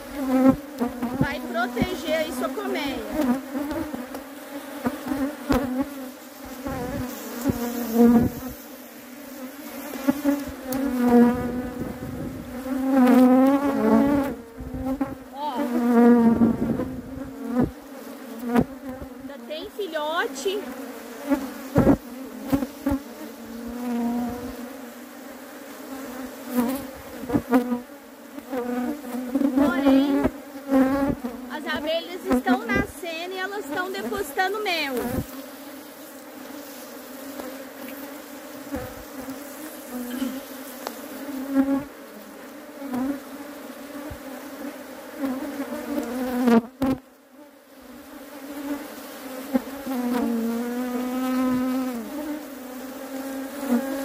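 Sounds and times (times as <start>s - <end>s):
honeybees buzzing: 0.0s - 54.0s.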